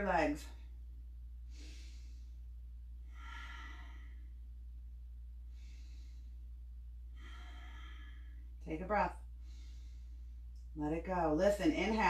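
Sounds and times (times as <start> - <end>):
steady low hum: 0.0 - 12.0
woman breathing: 1.4 - 10.7.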